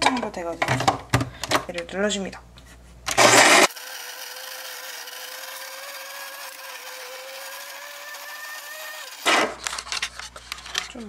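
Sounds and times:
coffee grinder grinding: 3.1 - 10.8.

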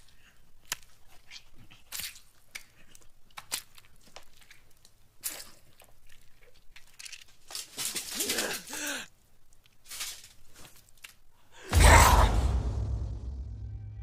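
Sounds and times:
wet chewing and crunching: 0.0 - 7.7
squelches of tearing flesh: 0.0 - 11.3.

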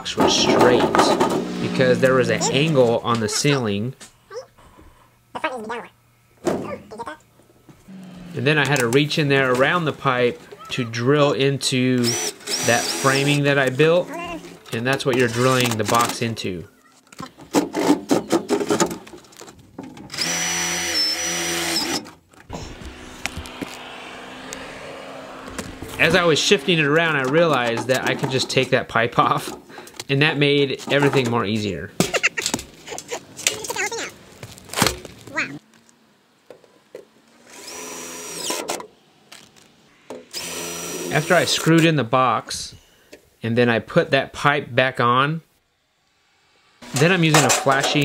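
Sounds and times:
metal knocking: 0.0 - 1.7
cordless drill whine: 1.1 - 2.8, 12.0 - 13.4, 20.1 - 26.6, 37.5 - 38.8, 40.3 - 41.6
cordless drill driving screw: 12.0 - 13.4, 20.1 - 22.1, 37.5 - 38.8, 40.3 - 41.4.

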